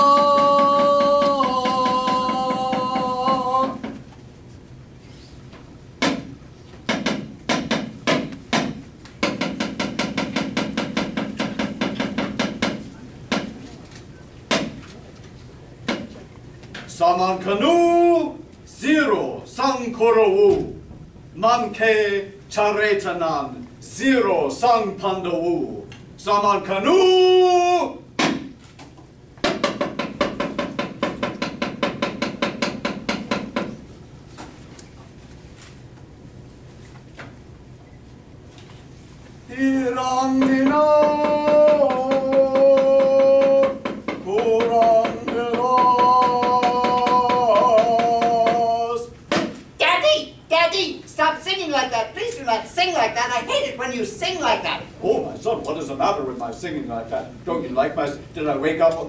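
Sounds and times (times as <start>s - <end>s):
rapid wooden knocking: 0.0s - 4.0s, 6.0s - 13.6s, 29.4s - 33.8s, 39.9s - 49.6s
wooden knocks on a wooden box: 29.4s - 33.8s, 49.3s - 49.6s.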